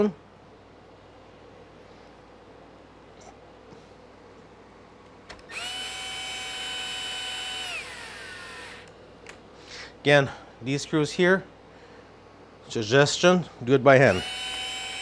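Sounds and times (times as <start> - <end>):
cordless drill motor whine: 5.4 - 8.9, 14.1 - 15.0.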